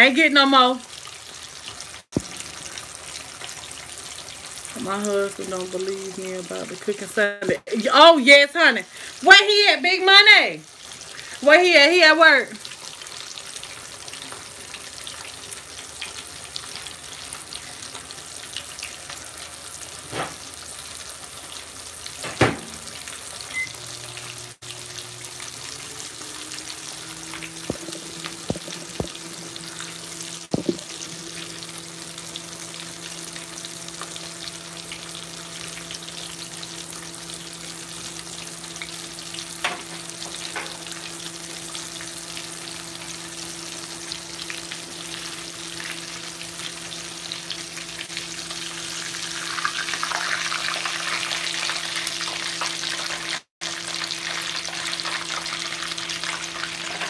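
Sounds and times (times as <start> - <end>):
fish deep-frying in oil: 0.0 - 57.0.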